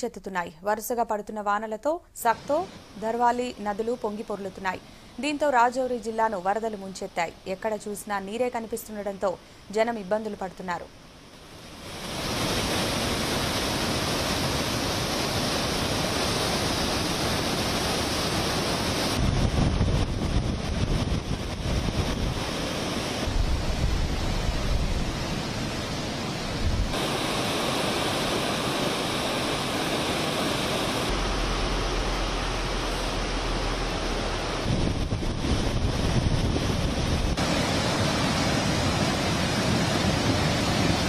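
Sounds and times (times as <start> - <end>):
floodwater rushing and churning: 11.4 - 41.0
wind buffeting microphone: 18.8 - 27.5, 31.1 - 41.0.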